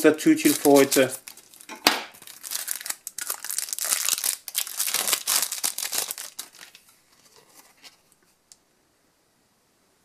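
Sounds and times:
foil wrapper crackling: 0.0s - 7.9s.

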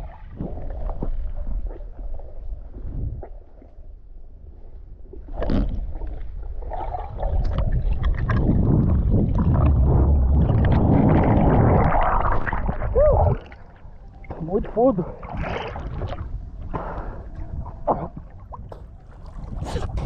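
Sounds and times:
underwater water rush: 5.3s - 16.4s.

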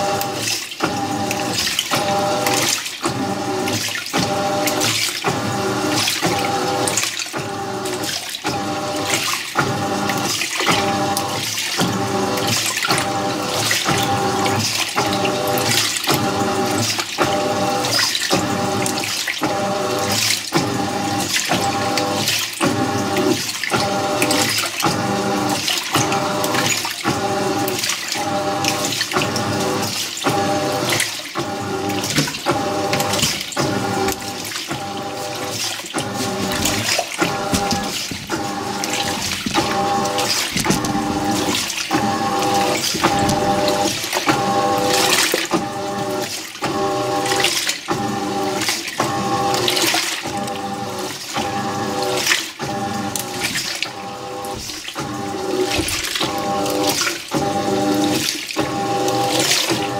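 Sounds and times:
washer motor rhythmic whine: 0.0s - 59.9s
water sloshing: 0.0s - 59.9s.

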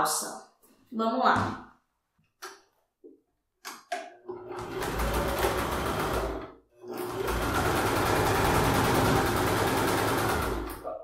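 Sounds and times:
sewing machine stitching: 4.2s - 11.0s.

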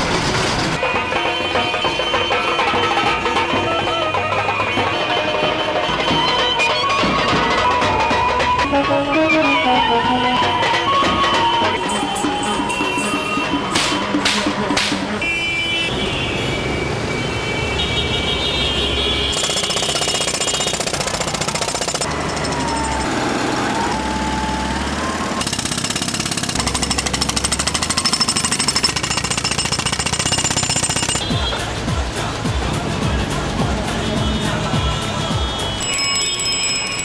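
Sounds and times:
music: 0.8s - 15.2s, 26.8s - 37.0s
mechanical hammering: 19.3s - 23.2s, 25.2s - 31.3s.

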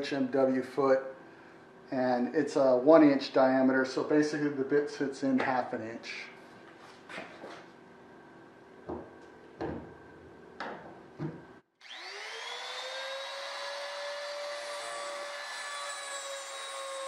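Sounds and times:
router motor whine: 11.8s - 17.0s.

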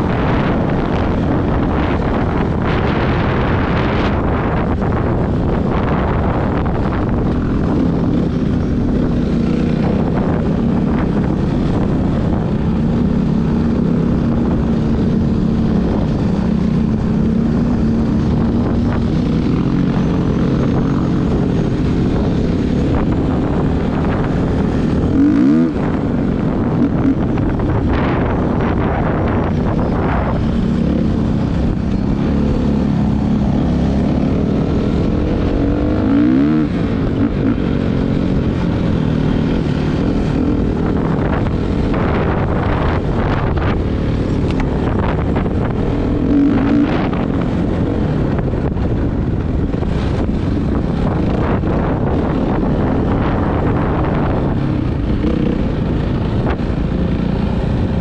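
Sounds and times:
wind buffeting microphone: 0.0s - 58.0s
motocross bike engine revving: 7.1s - 43.7s, 44.3s - 47.8s.

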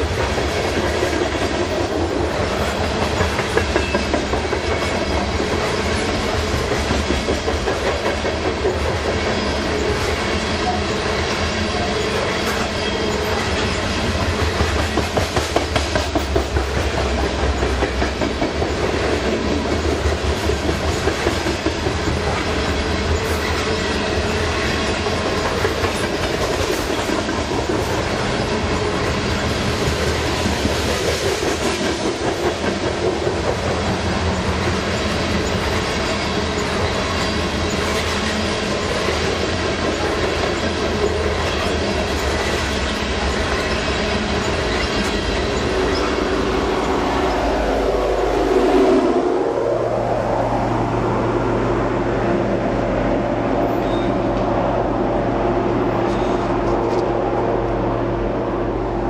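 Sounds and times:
wheels clicking over rail joints: 0.0s - 47.1s
steel wheel rumble: 0.0s - 59.0s.

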